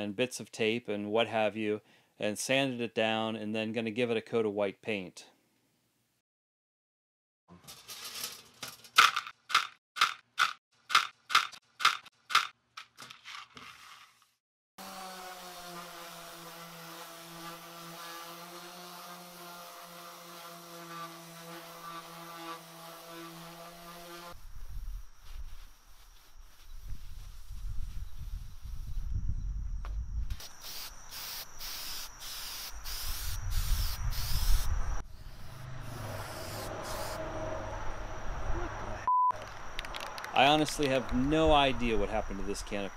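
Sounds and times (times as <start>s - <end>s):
orbit sander running: 14.8s - 27.3s
spray can hissing bursts: 30.4s - 34.7s, 35.9s - 37.2s
low rumble: 34.8s - 39.1s.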